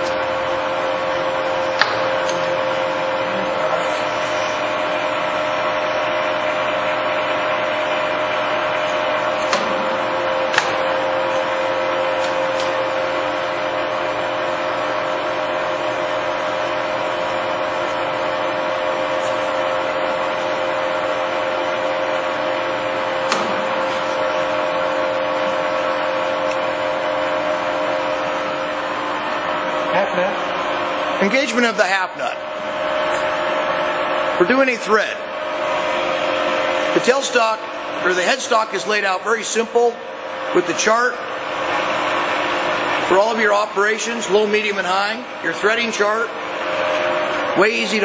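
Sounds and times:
lathe gear whine: 0.0 - 48.0.

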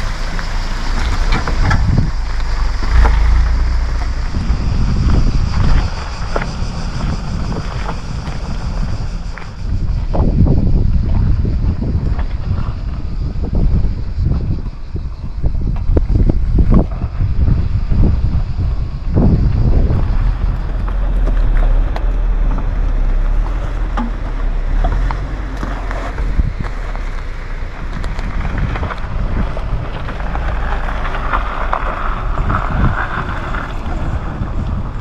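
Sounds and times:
off-road vehicle engine crawling: 0.0 - 35.0
wind buffeting microphone: 0.0 - 35.0.

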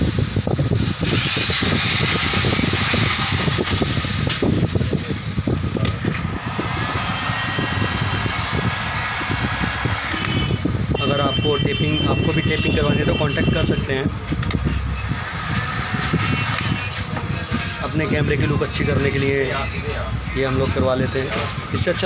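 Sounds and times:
heat gun blowing air: 1.0 - 4.4, 6.4 - 10.5.

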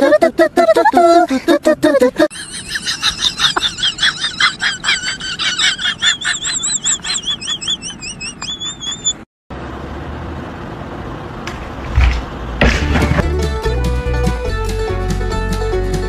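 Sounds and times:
high squeaky animal calls: 5.0 - 9.3.

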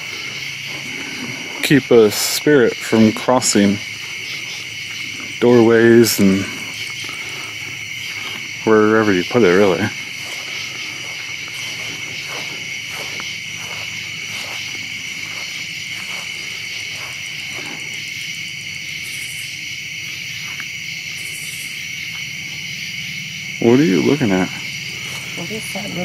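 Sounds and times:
crickets and insects chirring: 0.0 - 26.0
soft rustles: 9.6 - 18.0.

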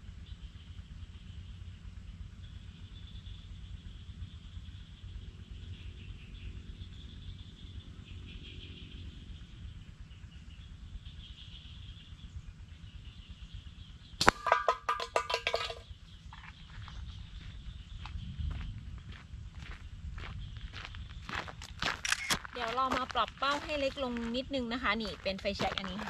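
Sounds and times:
can clattering across dirt: 14.2 - 15.8
shot clanging on metal can: 14.2 - 15.8.

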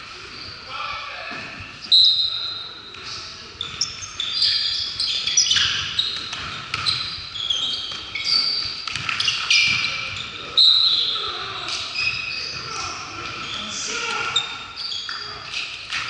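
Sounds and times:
sneakers squeaking: 0.0 - 16.0
basketball bouncing: 5.5 - 7.2, 7.9 - 10.3.

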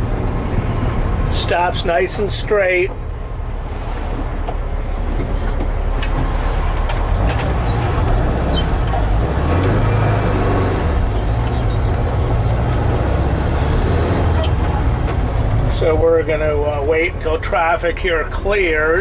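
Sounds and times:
van engine humming: 0.0 - 19.0.

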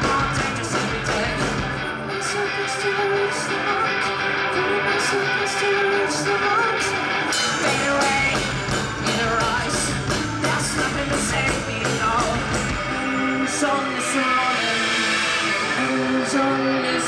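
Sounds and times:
drum kit: 0.0 - 1.9, 7.3 - 17.0
bass guitar: 0.0 - 17.0
electric guitars: 0.0 - 17.0.

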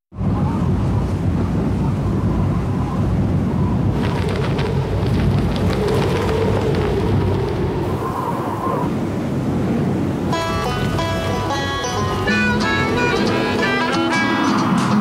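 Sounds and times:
rushing wind roar: 0.1 - 15.0
fabric flapping crackle: 3.9 - 8.2.

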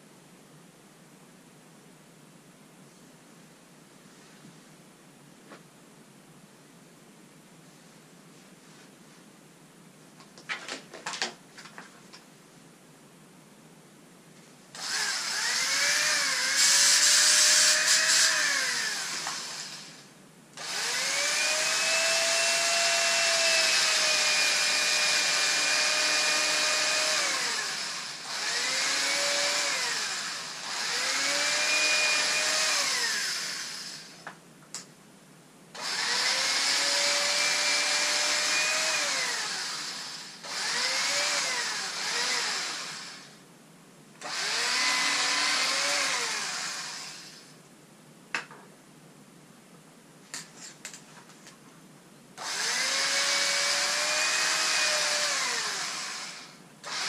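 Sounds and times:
electric fabric cutter motor whining: 14.8 - 20.0, 20.6 - 34.2, 35.8 - 43.4, 44.2 - 47.5, 52.4 - 57.0.

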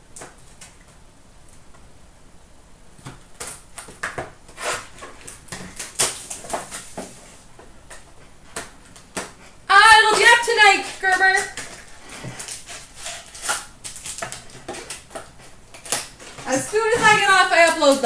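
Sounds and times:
cardboard and plastic wrap rustling: 3.9 - 18.0.

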